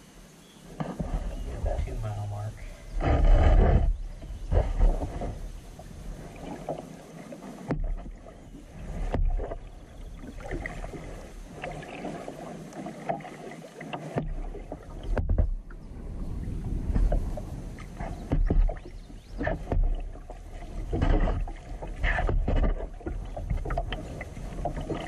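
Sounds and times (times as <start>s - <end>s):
paddle blades splashing: 0.0s - 25.0s
water dripping and sloshing: 4.5s - 15.8s, 16.4s - 25.0s
low rumble: 15.2s - 18.5s.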